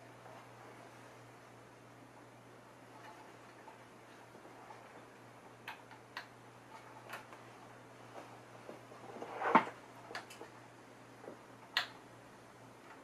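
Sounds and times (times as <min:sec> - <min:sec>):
faint low hum: 0:00.0 - 0:13.0
hands clicking and tapping parts: 0:03.0 - 0:07.5, 0:09.5 - 0:10.6, 0:11.2 - 0:12.1.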